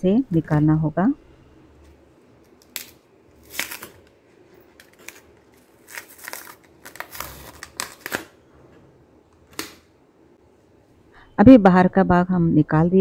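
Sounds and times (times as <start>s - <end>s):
banana stem layers tearing: 2.4s - 8.4s.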